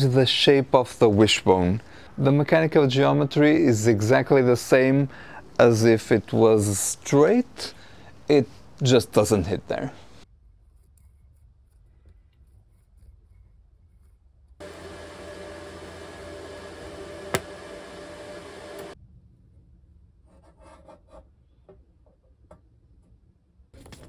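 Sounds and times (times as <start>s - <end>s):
harsh metalworking noise: 14.6s - 19.0s.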